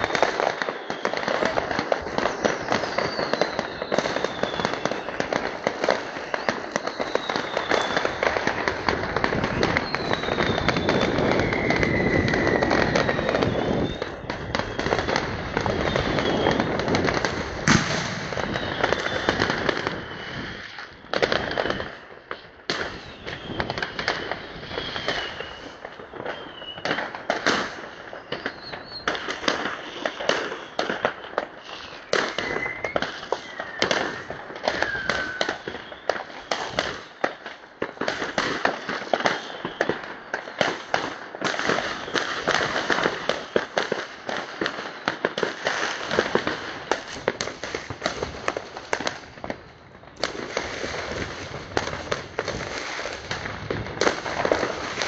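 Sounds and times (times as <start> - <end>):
fireworks bangs and crackles: 0.0 - 55.0
whistling fireworks: 0.0 - 55.0.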